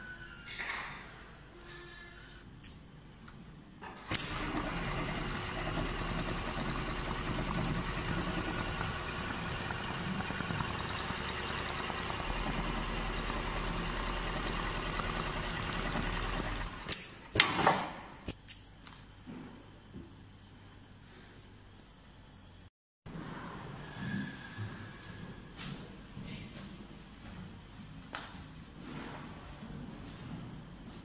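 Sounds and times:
sewing machine stitching: 4.0s - 17.2s.

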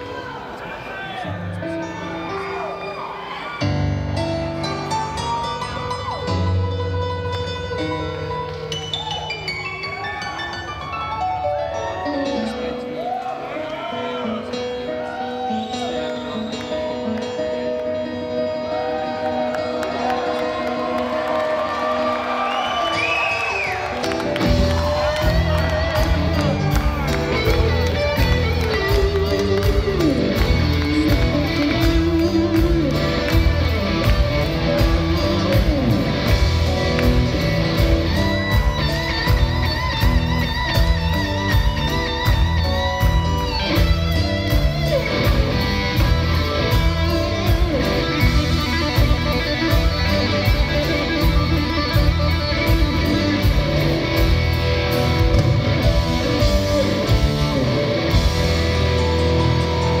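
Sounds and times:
live rock band: 1.4s - 13.2s, 13.9s - 60.0s
electric guitar: 3.6s - 12.9s, 23.0s - 60.0s.

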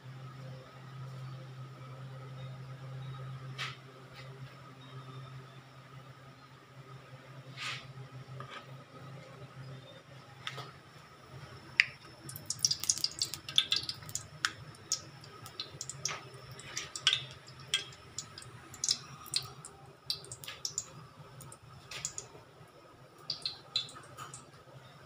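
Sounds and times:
oil crackling and popping: 11.8s - 22.3s, 23.3s - 24.5s
oil pouring into a wok: 12.3s - 19.5s.

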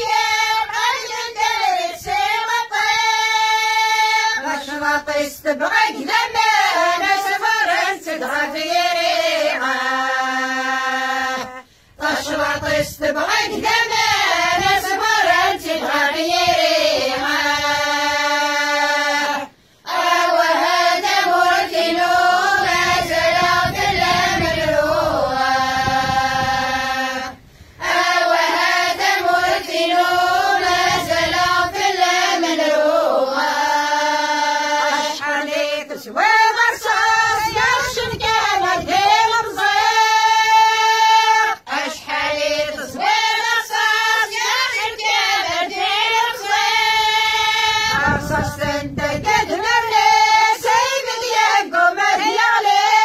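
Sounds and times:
women and girls singing in unison: 0.0s - 53.0s
singers breathing: 11.6s - 12.0s, 19.5s - 19.9s, 27.4s - 27.8s.

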